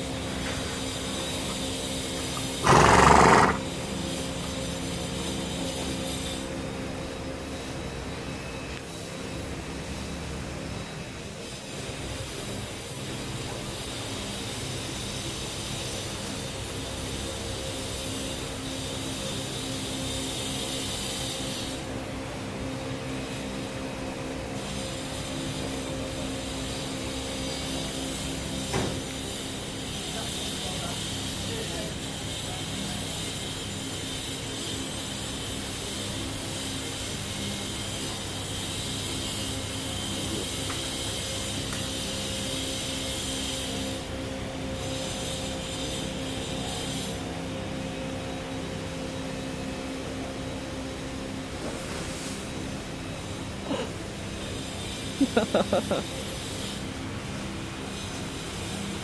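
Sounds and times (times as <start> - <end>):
steady background hum: 0.0 - 59.0
horse snorting: 2.3 - 3.8.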